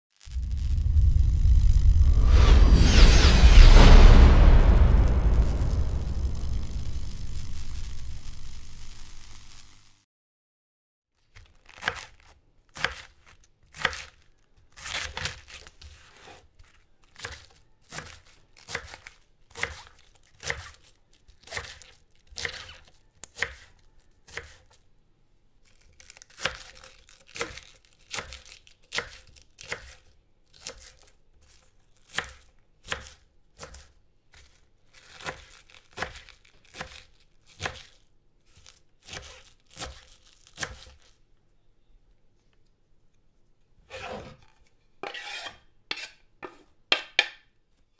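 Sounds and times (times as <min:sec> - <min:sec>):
knife chopping cabbage on board: 0:11.7 - 0:14.2, 0:14.8 - 0:24.8, 0:26.1 - 0:41.0.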